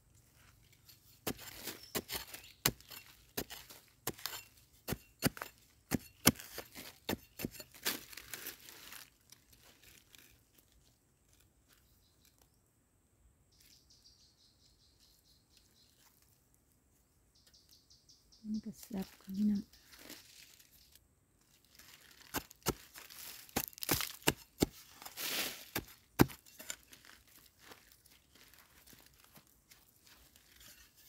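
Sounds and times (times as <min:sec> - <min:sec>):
digging tool striking soil: 0:00.8 - 0:09.0, 0:21.8 - 0:27.5.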